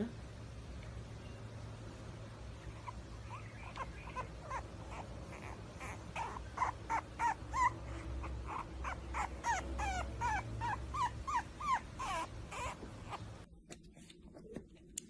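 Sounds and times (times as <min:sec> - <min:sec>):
puppy whimpering: 0:02.6 - 0:13.5.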